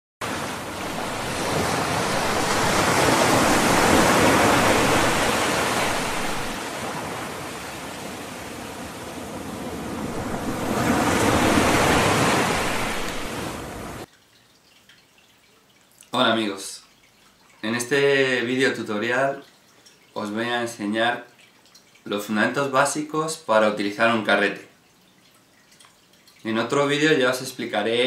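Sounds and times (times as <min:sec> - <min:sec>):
ocean waves washing in: 0:00.2 - 0:14.1.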